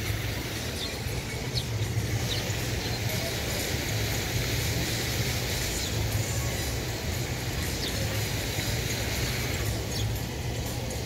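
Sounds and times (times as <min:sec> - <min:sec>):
sparrow chirps: 0:00.0 - 0:10.6
water fountain rushing: 0:00.0 - 0:11.0.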